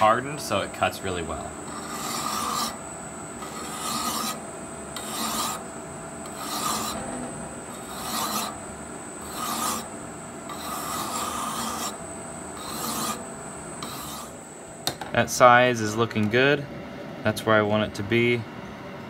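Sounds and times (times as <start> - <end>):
lathe humming with whine: 0.0 - 14.9
file rasping on steel: 1.7 - 2.8, 3.4 - 4.4, 5.0 - 5.6, 6.2 - 8.6, 9.2 - 9.9, 10.5 - 12.0, 12.6 - 13.2, 13.8 - 14.4.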